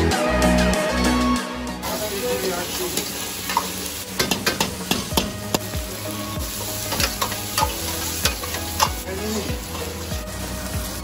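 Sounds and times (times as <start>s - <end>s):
food sizzling: 1.8s - 11.0s
metal ladle scraping a wok: 3.0s - 10.6s.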